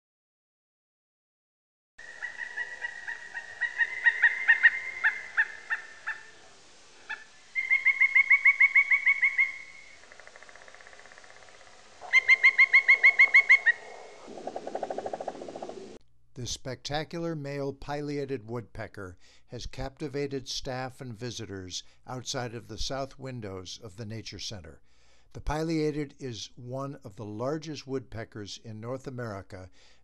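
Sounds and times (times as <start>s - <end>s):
woodpecker calling: 2.0s - 16.0s.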